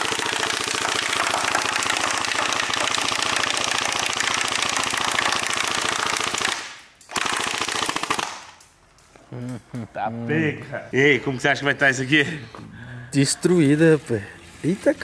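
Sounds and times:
airsoft rifle rapid fire: 0.0s - 8.6s.

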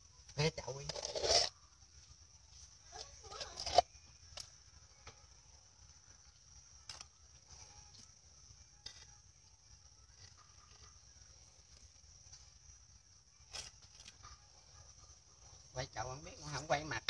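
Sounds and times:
faint high-pitched whine: 0.0s - 17.0s
metal template scraping cement: 0.8s - 1.5s.

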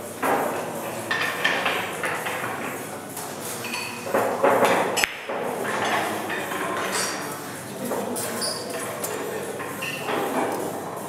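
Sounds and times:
room noise: 0.0s - 11.0s.

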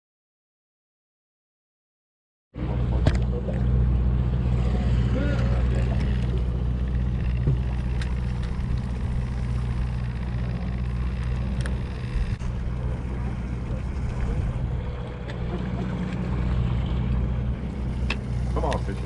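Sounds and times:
boat engine idling: 2.6s - 19.0s
faint clicks: 5.3s - 12.4s.

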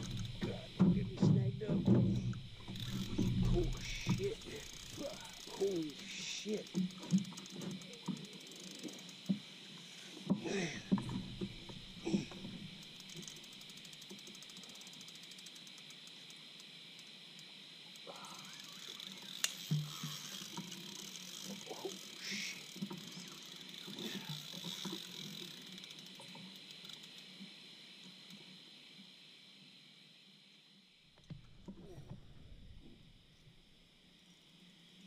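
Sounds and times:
knocks against boat: 0.0s - 4.3s
fishing reel ticking: 0.0s - 27.4s.

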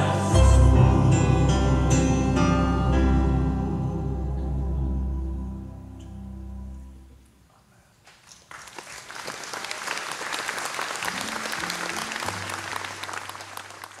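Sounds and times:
low sustained instrument notes: 0.0s - 7.3s
audience applauding: 8.1s - 14.0s.

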